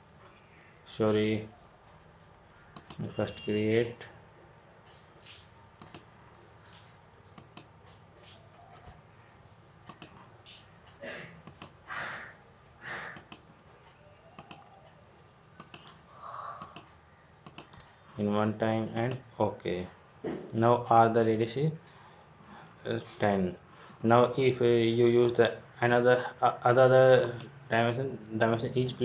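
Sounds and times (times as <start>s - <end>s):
computer mouse clicking: 2.7s - 3.2s, 4.9s - 6.1s, 6.7s - 9.0s, 9.8s - 11.8s, 13.0s - 15.0s, 15.6s - 16.0s, 16.6s - 18.0s, 18.8s - 19.3s.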